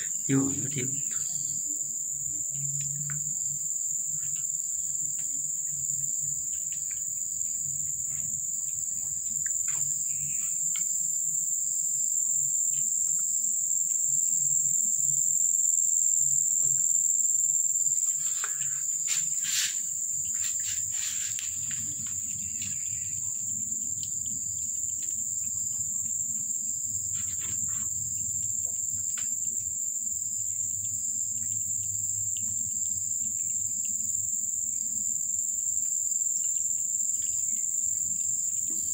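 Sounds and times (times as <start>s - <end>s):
high-pitched insect trill: 0.0s - 38.9s.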